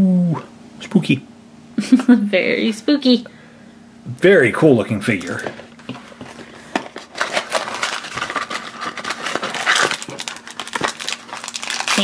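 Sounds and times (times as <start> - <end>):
packaging crinkling and rustling: 5.0 - 12.0.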